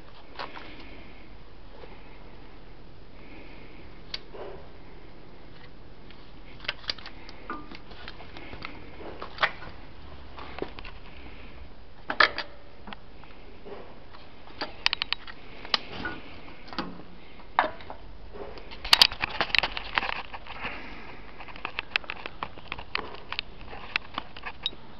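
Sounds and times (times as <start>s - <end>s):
jigsaw handling clicks and knocks: 18.6s - 20.6s.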